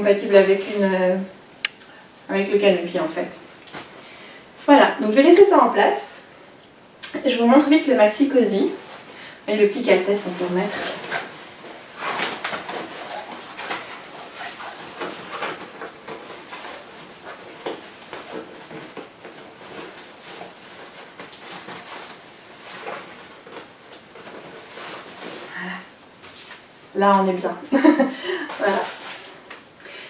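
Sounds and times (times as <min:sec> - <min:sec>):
fabric rustling: 0:08.0 - 0:29.6.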